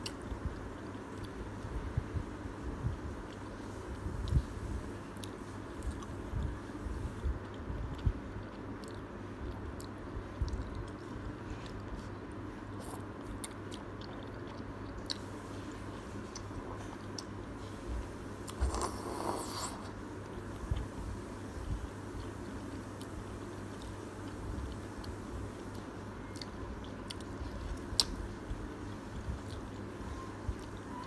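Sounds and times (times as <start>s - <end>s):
wet chewing and mouth clicks: 7.4s - 15.3s, 23.0s - 31.0s
noodle slurp: 18.5s - 19.9s.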